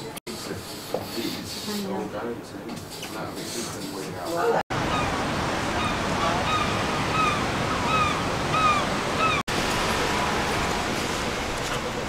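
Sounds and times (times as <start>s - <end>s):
street noise: 2.6s - 12.0s
bird calling: 4.8s - 9.5s.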